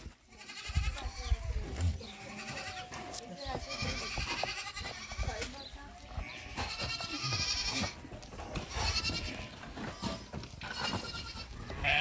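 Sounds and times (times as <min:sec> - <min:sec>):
livestock bleating: 0:00.1 - 0:08.0, 0:08.6 - 0:12.0.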